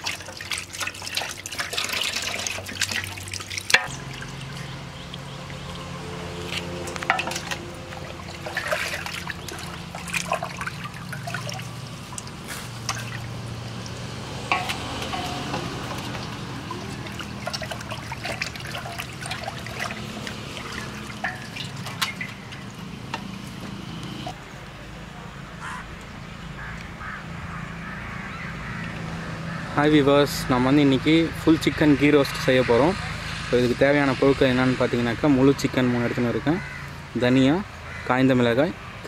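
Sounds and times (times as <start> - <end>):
water sloshing in a metal pot: 0.0 - 24.4
water trickling and dripping: 0.0 - 24.4.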